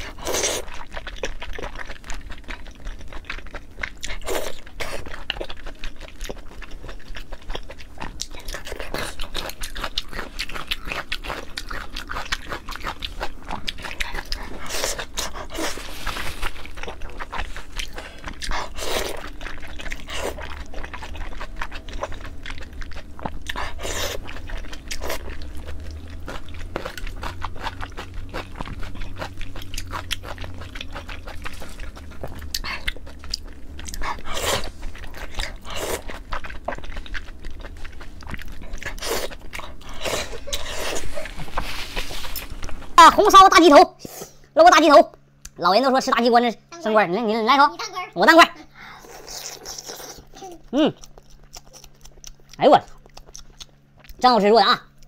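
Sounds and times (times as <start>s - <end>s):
chewing and slurping: 0.0s - 44.5s, 48.6s - 54.2s
wet mouth smacks and clicks: 51.1s - 54.2s.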